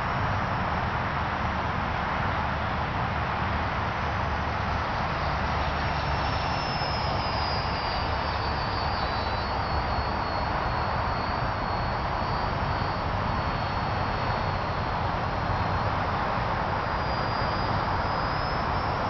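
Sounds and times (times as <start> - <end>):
faint high whine: 0.0 - 19.0
model plane flying past: 2.5 - 19.0.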